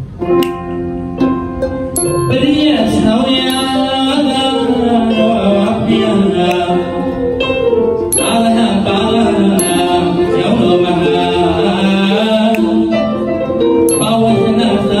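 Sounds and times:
arched harp: 0.7 - 6.1
hand cymbals ringing: 2.0 - 5.6, 8.1 - 8.9, 9.5 - 10.2, 13.9 - 14.4
man singing: 2.0 - 15.0.

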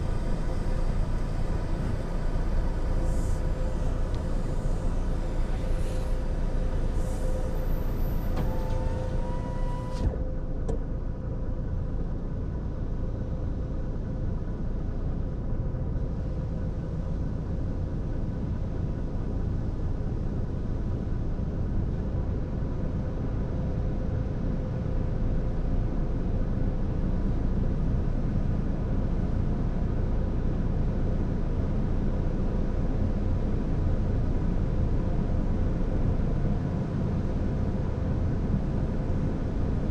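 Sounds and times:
car idling: 0.0 - 20.2.

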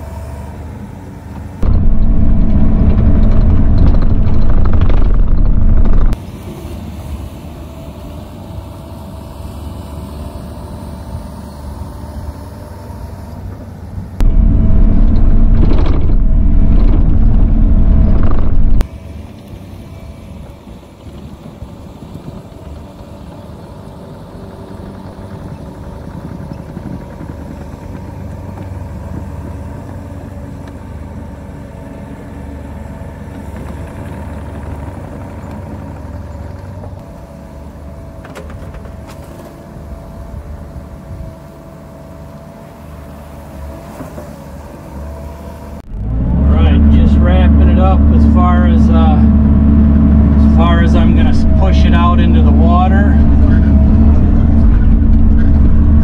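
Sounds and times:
excavator diesel engine running: 0.0 - 6.3, 7.3 - 56.0
loud low rumble: 1.6 - 6.2, 14.2 - 18.9, 45.8 - 56.0.

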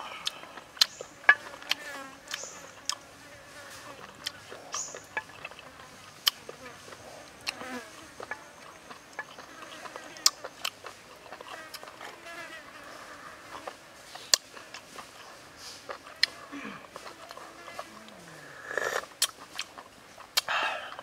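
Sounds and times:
fly buzzing: 0.8 - 10.5, 11.4 - 14.1, 15.8 - 19.1
mouth clicks: 15.8 - 21.0
sipping slurps: 18.5 - 19.7.

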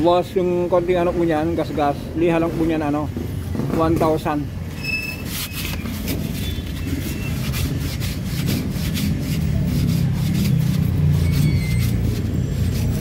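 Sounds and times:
sandpaper rubbing on metal shaft: 4.9 - 13.0.

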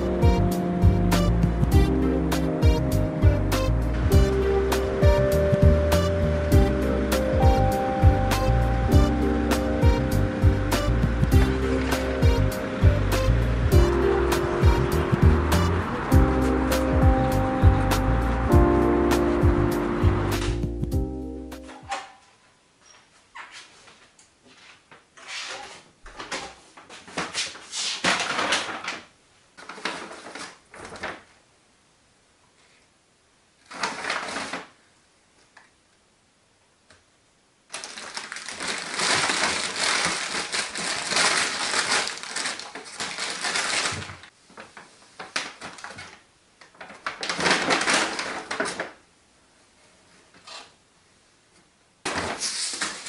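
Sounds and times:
paper bag rustling: 24.7 - 31.4, 33.6 - 34.9, 37.7 - 49.1, 52.0 - 53.0.

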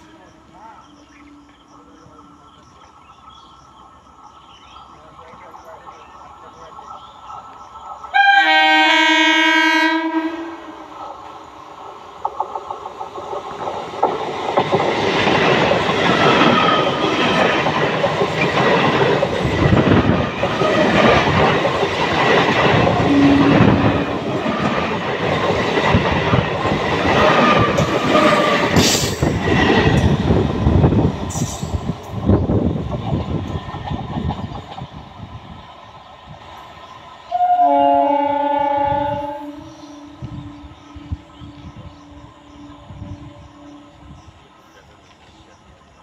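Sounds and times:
train wheels clattering over rails: 12.1 - 37.0.

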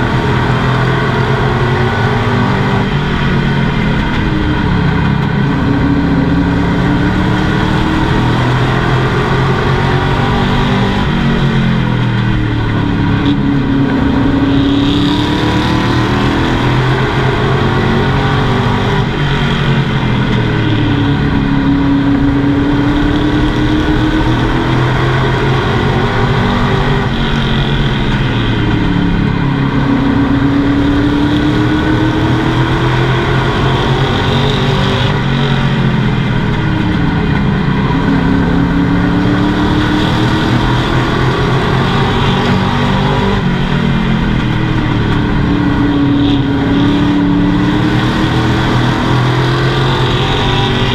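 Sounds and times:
race truck engine revving: 0.0 - 50.9.

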